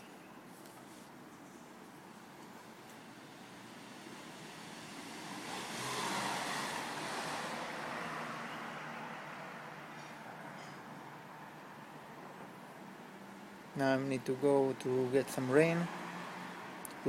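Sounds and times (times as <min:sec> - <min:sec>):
vehicle passing by: 0:03.2 - 0:12.1, 0:14.2 - 0:17.0.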